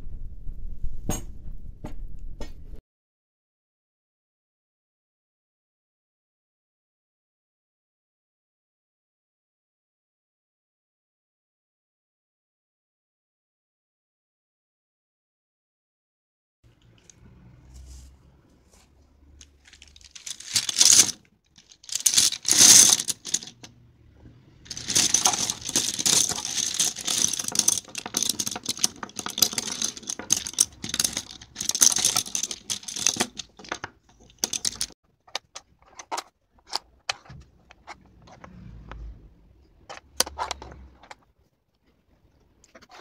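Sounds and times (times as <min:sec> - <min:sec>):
tiles shuffling clatter: 0:19.4 - 0:23.7, 0:24.7 - 0:38.4
tiles pouring onto table: 0:19.6 - 0:23.7, 0:24.7 - 0:35.0
tiles clicking when stacked: 0:19.7 - 0:23.7, 0:24.7 - 0:35.0.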